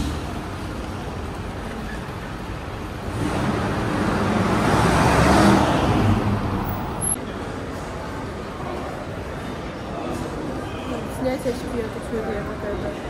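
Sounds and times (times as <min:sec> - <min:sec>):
background traffic noise: 0:00.0 - 0:13.0
vehicle passing close by: 0:03.0 - 0:07.2.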